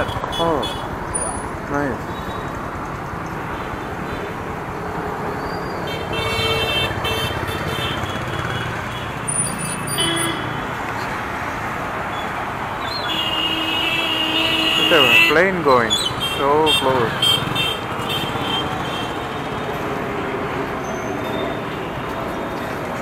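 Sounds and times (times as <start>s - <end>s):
vehicle horns honking: 0.0s - 1.0s, 5.5s - 10.8s, 12.8s - 19.6s
city street traffic: 0.0s - 23.0s.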